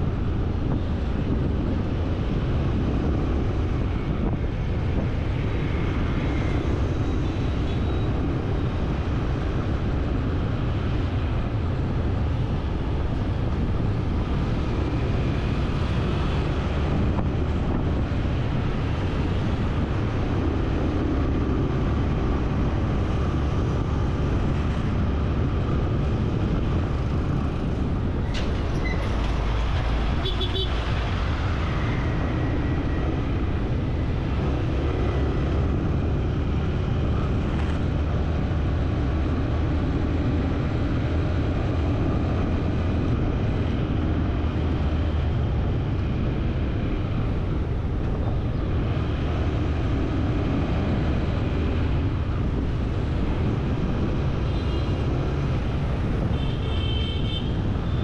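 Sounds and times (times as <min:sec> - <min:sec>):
moving vehicle rumble: 0:00.0 - 0:58.0.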